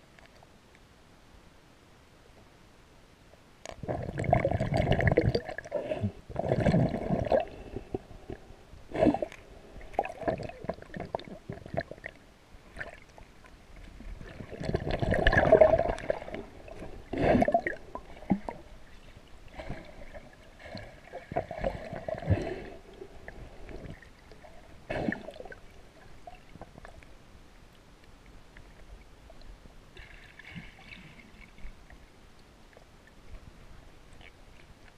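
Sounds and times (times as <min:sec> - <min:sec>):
muffled underwater gurgling and sloshing: 0:03.7 - 0:34.9.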